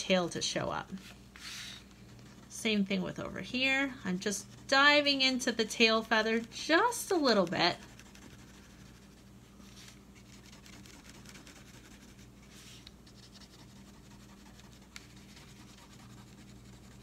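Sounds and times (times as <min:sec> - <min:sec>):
crayon scratching on paper: 0:06.2 - 0:09.3, 0:10.2 - 0:17.0.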